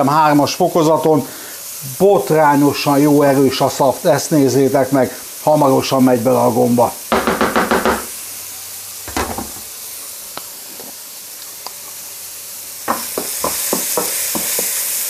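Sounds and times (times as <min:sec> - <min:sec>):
mushrooms sizzling in a wok: 0:00.0 - 0:15.0
sauce simmering: 0:07.0 - 0:15.0.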